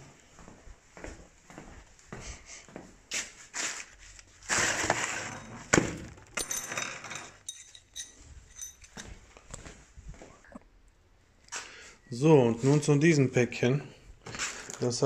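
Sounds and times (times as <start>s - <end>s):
metal parts clicking and knocking: 6.2s - 9.1s.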